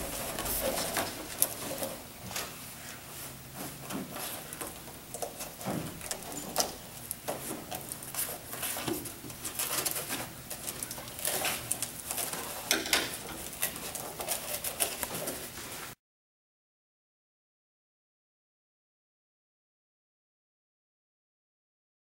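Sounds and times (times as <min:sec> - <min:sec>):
crinkling and rustling: 0:00.0 - 0:16.0.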